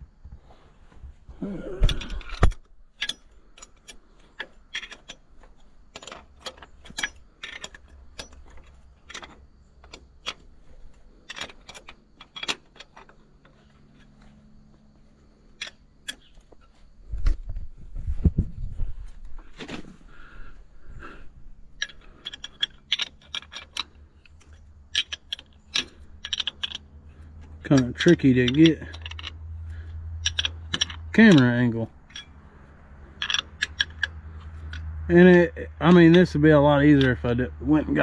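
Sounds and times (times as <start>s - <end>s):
wrench clinking on bolt heads: 1.8s - 14.4s, 21.7s - 38.0s.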